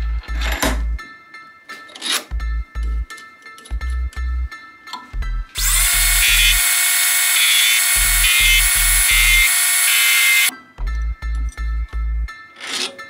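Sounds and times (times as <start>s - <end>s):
background music with beat: 0.0s - 6.5s, 10.5s - 13.0s
metal lathe whining: 5.6s - 10.5s.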